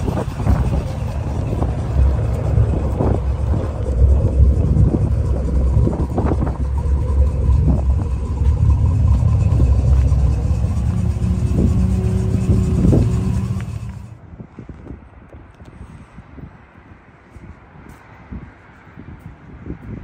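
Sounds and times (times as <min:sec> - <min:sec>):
car engine running: 0:00.0 - 0:14.2.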